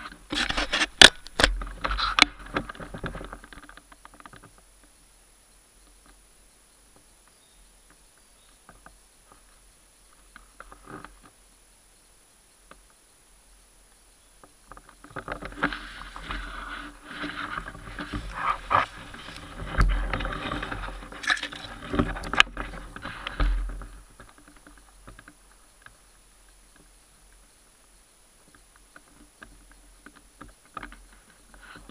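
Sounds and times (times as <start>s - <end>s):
sharp snaps and ticks: 0.0s - 4.9s, 13.9s - 27.6s
leaf litter and cloth rustling: 15.0s - 24.9s.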